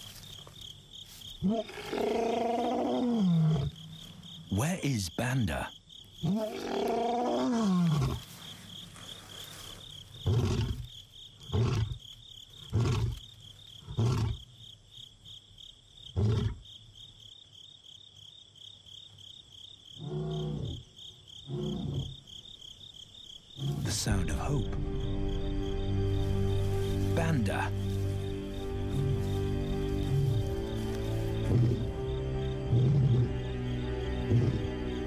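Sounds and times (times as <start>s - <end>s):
crickets chirping: 0.0s - 35.0s
lion roaring: 1.4s - 3.8s, 6.2s - 8.3s, 32.7s - 33.4s.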